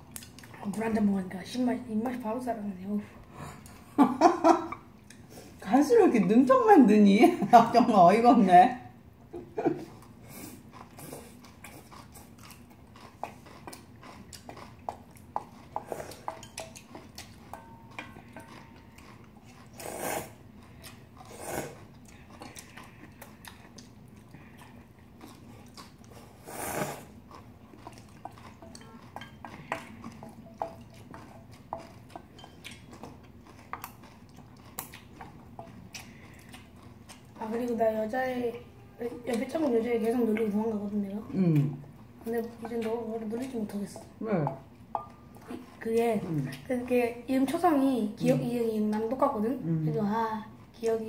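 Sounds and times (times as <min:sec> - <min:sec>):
chewing: 0:00.1 - 0:01.0, 0:09.8 - 0:49.4
utensils clinking against steel bowls: 0:15.8 - 0:19.0, 0:28.3 - 0:33.0.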